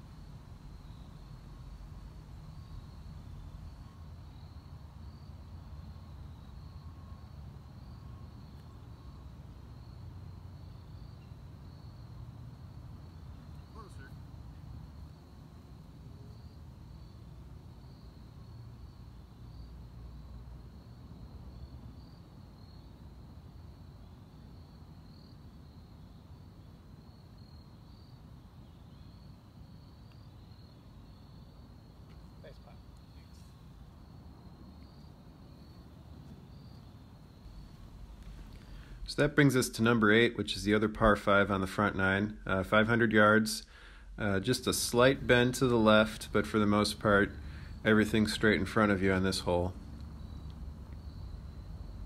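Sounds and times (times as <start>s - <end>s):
low outdoor rumble: 0.0s - 24.0s, 29.0s - 52.0s
insects chirping: 0.0s - 52.0s
steady low rumble: 37.2s - 52.0s.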